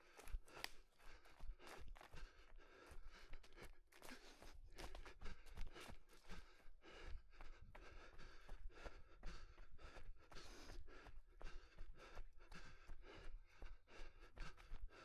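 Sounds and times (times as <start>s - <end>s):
runner breathing hard: 0.0s - 15.0s.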